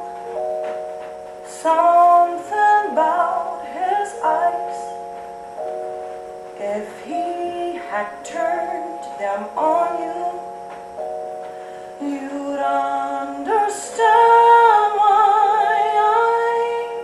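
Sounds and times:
instrumental chords: 0:00.0 - 0:17.0
woman singing: 0:01.5 - 0:05.0, 0:06.6 - 0:10.8, 0:12.0 - 0:17.0.

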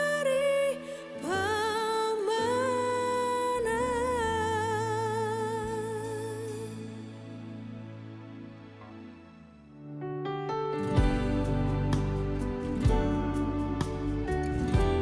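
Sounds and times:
high voice singing with vibrato: 0:00.0 - 0:06.8.

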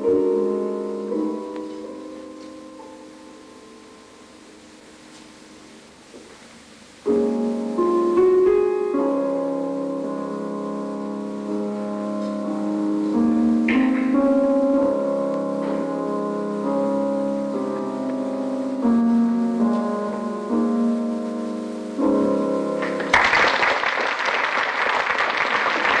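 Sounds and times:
classical piano music: 0:00.0 - 0:06.4, 0:07.0 - 0:23.4
audience applause: 0:22.8 - 0:26.0.

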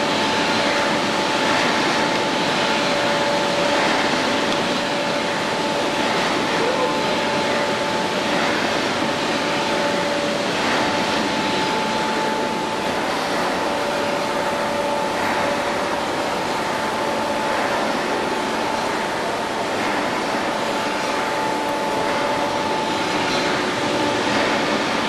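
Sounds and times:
crane whining tones: 0:00.0 - 0:25.0
overhead crane mechanical rush: 0:00.0 - 0:25.0.

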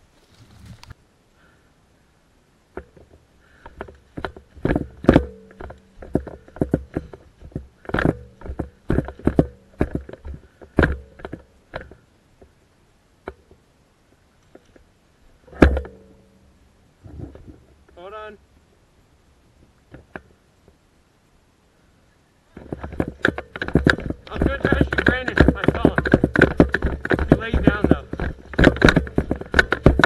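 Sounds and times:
footsteps crunching on pine needles: 0:00.0 - 0:01.0
gear knocking and rattling: 0:02.8 - 0:12.0, 0:22.5 - 0:30.0.

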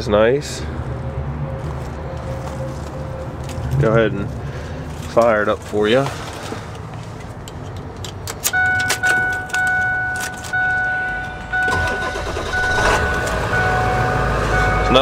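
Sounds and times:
diesel engine cranking and rumbling: 0:07.4 - 0:15.0
keys jangling in ignition lock: 0:07.6 - 0:12.8
dashboard warning chime: 0:08.5 - 0:15.0.

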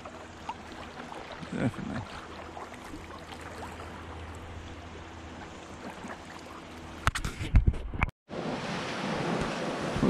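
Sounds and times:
water lapping around kayak: 0:00.0 - 0:10.0
small faint splashes: 0:00.4 - 0:04.7, 0:05.5 - 0:06.8.

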